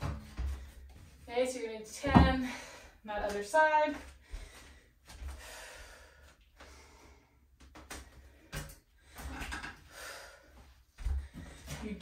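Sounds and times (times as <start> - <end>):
woman breathing in short breaths: 4.2 - 7.5.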